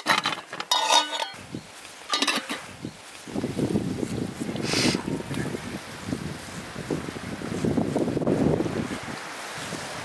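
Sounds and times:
dishes clinking: 0:00.0 - 0:01.4, 0:02.1 - 0:02.7.

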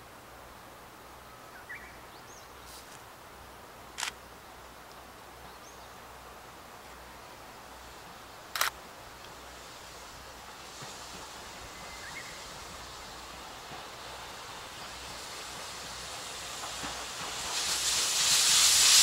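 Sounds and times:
faint outdoor background: 0:00.0 - 0:19.0
camera shutter clicks: 0:04.0 - 0:04.2, 0:08.5 - 0:08.8.

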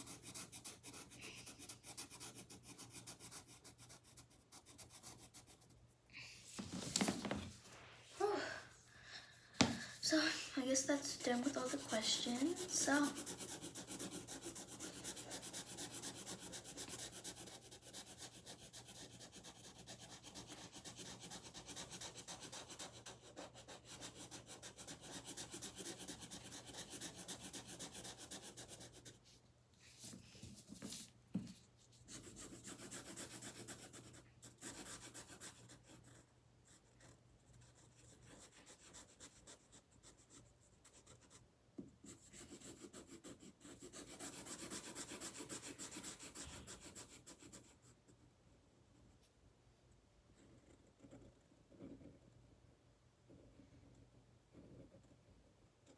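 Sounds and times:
marker scribbling on paper: 0:00.0 - 0:05.8, 0:10.0 - 0:41.4, 0:42.0 - 0:47.8.

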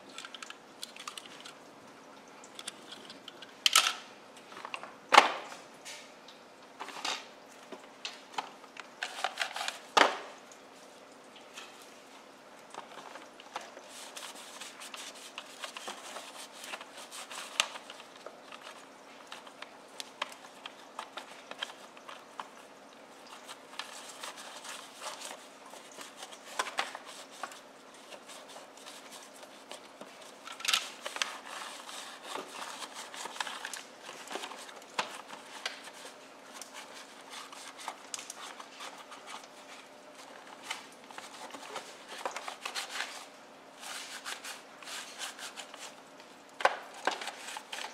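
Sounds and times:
cloth rubbing on plastic toy: 0:34.4 - 0:46.0.

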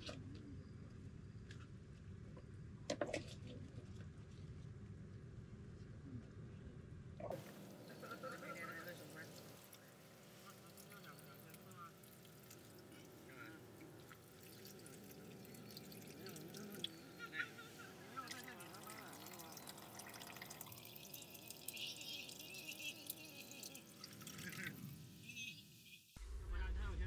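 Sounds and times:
water pouring into broth: 0:07.3 - 0:25.3.

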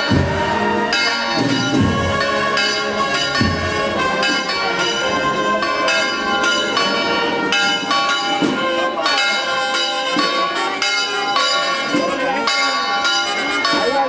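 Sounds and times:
church bells pealing: 0:00.0 - 0:14.0.

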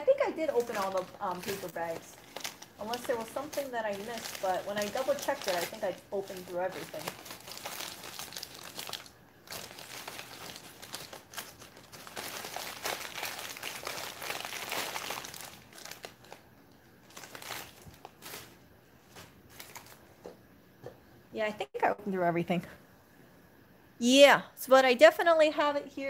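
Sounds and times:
paper bags crinkling: 0:00.1 - 0:16.4, 0:17.0 - 0:20.1.

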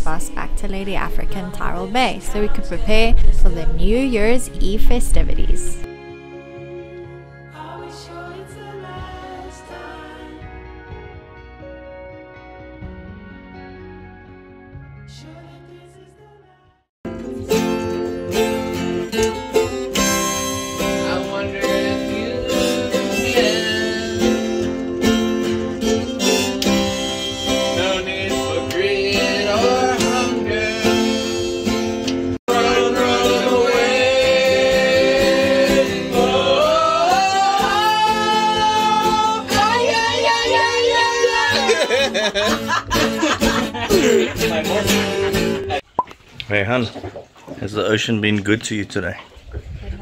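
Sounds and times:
acoustic guitar playing: 0:00.0 - 0:08.0, 0:17.1 - 0:46.0
person singing: 0:20.8 - 0:24.6, 0:27.1 - 0:31.7, 0:32.5 - 0:42.3, 0:43.8 - 0:45.8.

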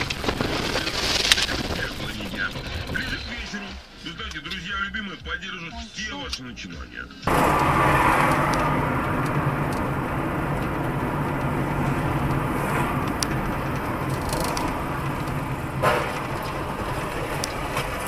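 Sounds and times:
tyre and road noise: 0:00.0 - 0:04.7, 0:07.2 - 0:18.0
car engine hum: 0:07.3 - 0:18.0.

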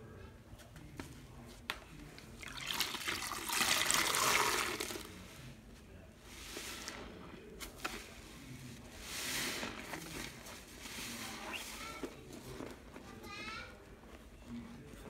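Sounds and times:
wet sponge squishing: 0:02.4 - 0:05.4.

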